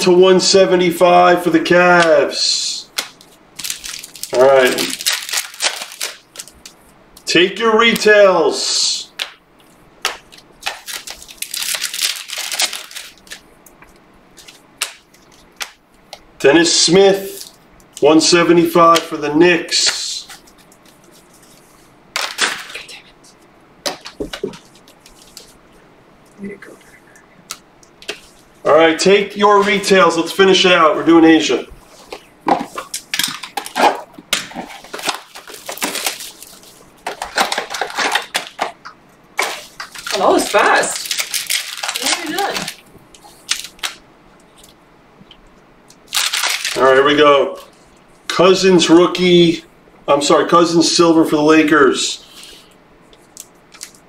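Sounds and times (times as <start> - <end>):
cardboard and foil tearing: 3.6 - 6.6, 10.6 - 13.4, 32.8 - 38.7, 39.4 - 44.0, 46.1 - 46.9.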